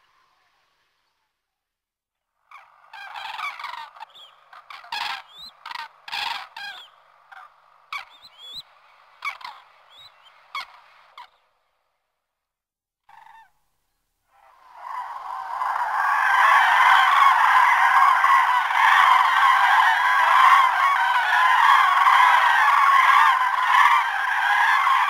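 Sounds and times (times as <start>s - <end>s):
cranes trumpeting calls: 2.4s - 11.5s, 13.1s - 13.6s, 14.3s - 25.0s.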